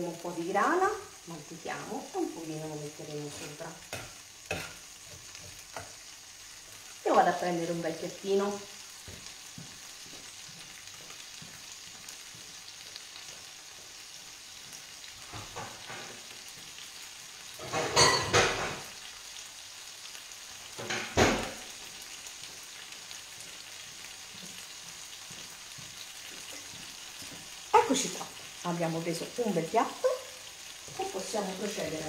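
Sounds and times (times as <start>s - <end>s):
food sizzling in a frying pan: 0.0s - 32.0s.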